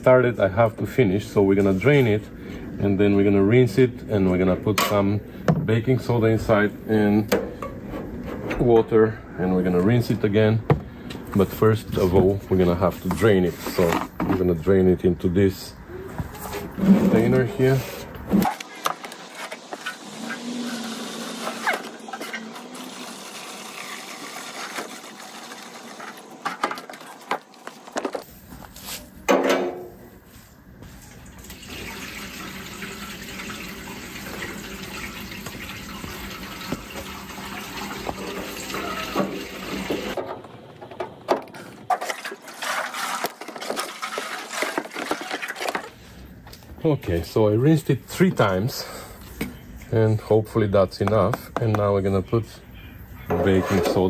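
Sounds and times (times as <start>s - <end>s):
hose running water into tank: 18.4s - 27.9s, 31.2s - 40.2s, 41.9s - 45.9s
water sloshing in metal tank: 31.4s - 46.0s
liquid pouring into plastic jug: 42.1s - 45.9s.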